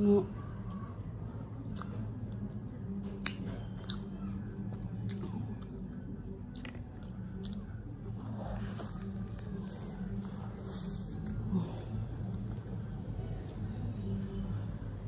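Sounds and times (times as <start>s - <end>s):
steady low hum: 0.0s - 15.0s
person chewing food: 1.5s - 12.9s.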